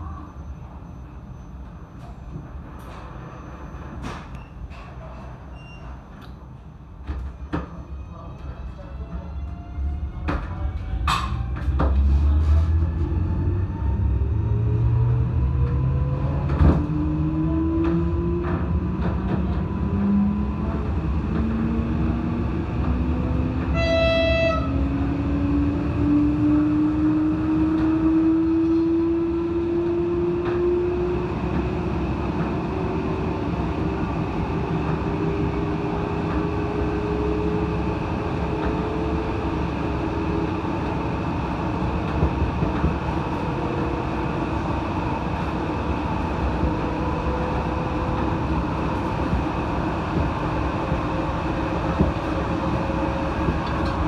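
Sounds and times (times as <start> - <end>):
train running rumble: 6.9 - 54.0
train drive whine: 8.4 - 54.0
train horn toot: 23.7 - 24.8.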